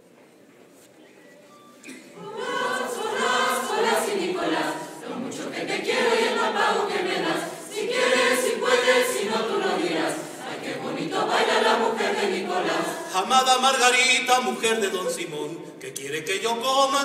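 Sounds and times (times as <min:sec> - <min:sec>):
choir singing: 0:02.2 - 0:15.2.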